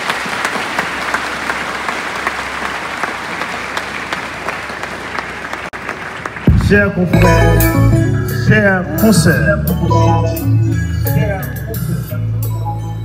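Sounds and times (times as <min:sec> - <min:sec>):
large crowd applauding: 0:00.0 - 0:07.4.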